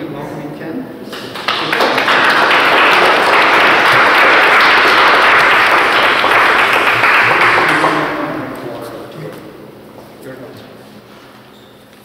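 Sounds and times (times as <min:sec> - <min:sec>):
audience applauding: 0:01.1 - 0:08.8.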